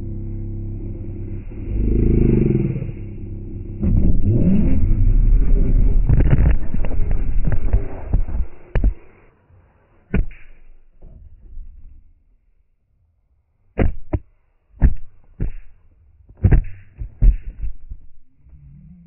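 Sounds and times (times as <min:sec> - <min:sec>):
sharp knocks: 0:10.1 - 0:10.7, 0:13.8 - 0:15.8, 0:16.4 - 0:18.1.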